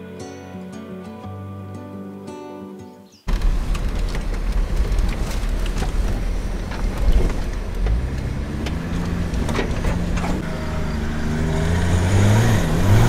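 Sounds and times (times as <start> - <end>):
car engine running: 3.3 - 13.0.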